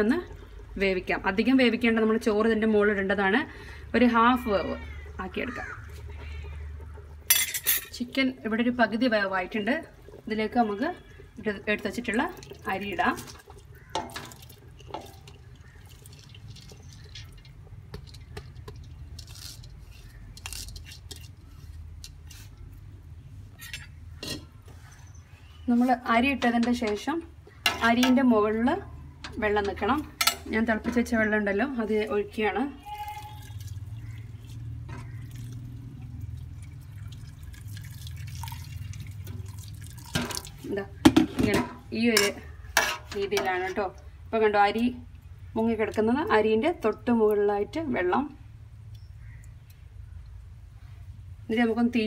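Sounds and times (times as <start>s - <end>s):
water pouring from kettle: 3.7s - 19.3s, 32.8s - 40.7s.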